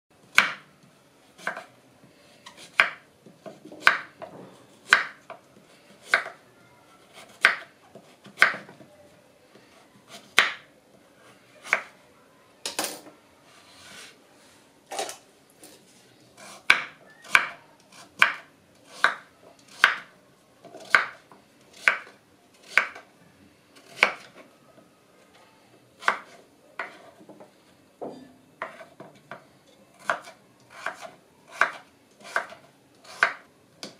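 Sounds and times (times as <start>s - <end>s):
knife chopping on wooden board: 0.4s - 0.6s, 2.7s - 4.2s, 8.2s - 8.7s, 18.2s - 18.4s, 19.0s - 19.2s, 30.0s - 33.9s.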